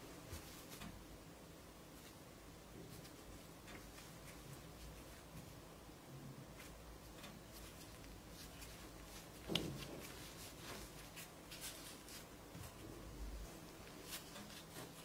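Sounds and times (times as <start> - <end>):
hands kneading dough on wood: 6.5 - 15.0.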